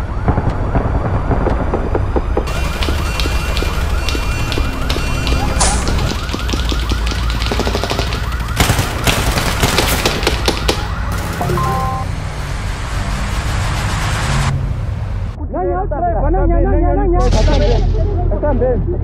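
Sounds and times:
sharp cracks: 0.2 - 11.6
warbling electronic siren: 2.4 - 9.0, 10.4 - 14.5.

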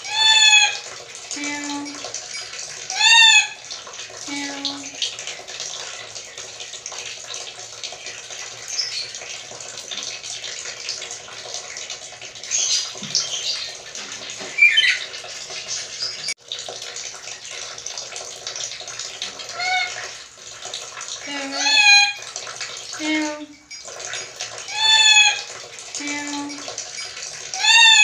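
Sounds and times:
parrot squawking: 0.0 - 0.8, 2.9 - 3.6, 14.4 - 15.2, 19.5 - 20.0, 21.3 - 22.2, 24.7 - 25.5, 27.6 - 28.0.

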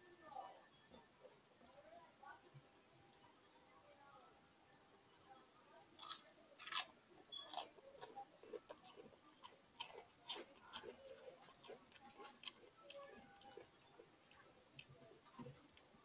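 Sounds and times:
person chewing crunchy food: 6.0 - 15.9.

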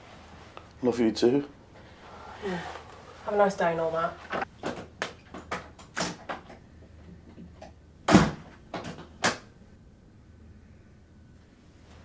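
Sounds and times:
door slamming shut: 8.1 - 9.4.

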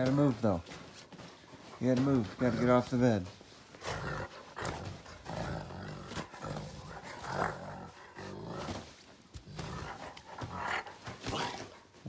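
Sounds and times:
dog growling low: 3.7 - 11.8.

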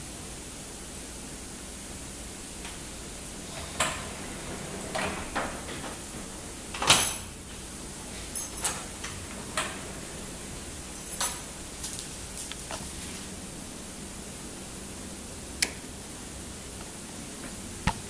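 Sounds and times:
sliding door scraping: 2.9 - 11.0.

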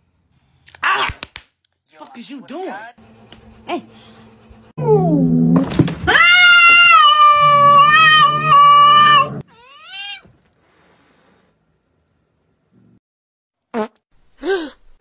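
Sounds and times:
cats yowling: 6.1 - 10.3.

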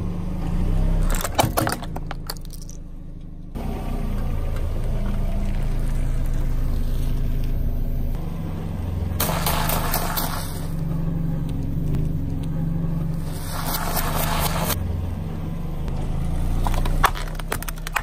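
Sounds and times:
car engine idling: 0.0 - 18.0
tyre crunching snacks: 16.6 - 18.0.

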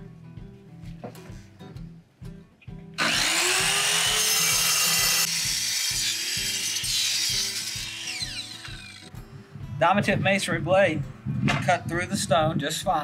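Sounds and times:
miter saw cutting stone: 3.0 - 9.1.

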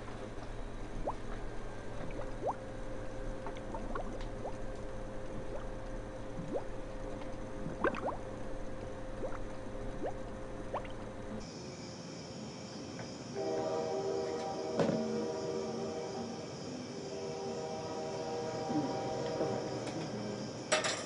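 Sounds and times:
faint hum: 0.0 - 21.0
stew bubbling plops: 0.9 - 2.7, 3.4 - 8.4, 9.1 - 11.1.

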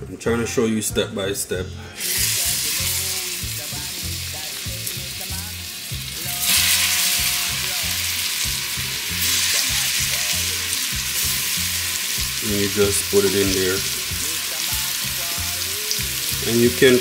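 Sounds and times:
chicken frying in hot oil: 2.0 - 17.0.

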